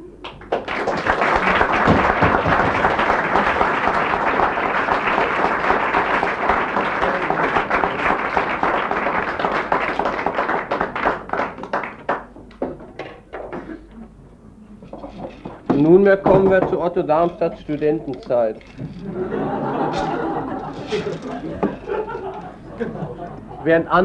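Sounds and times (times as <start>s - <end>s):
audience applauding: 0.1s - 12.7s, 19.0s - 23.6s.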